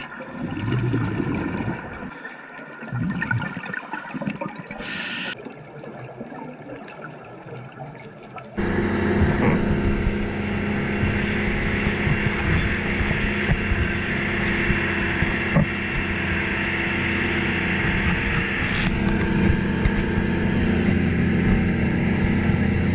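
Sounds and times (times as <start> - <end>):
water splashing against hull: 0.0 - 22.9
boat engine droning: 8.6 - 22.9
wind noise: 8.9 - 22.9.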